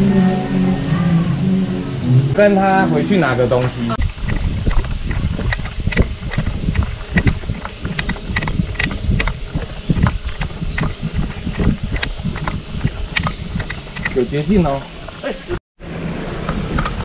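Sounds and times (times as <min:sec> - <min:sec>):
wind rumbling on microphone: 0:03.3 - 0:17.0
footsteps on hard path: 0:03.4 - 0:15.6.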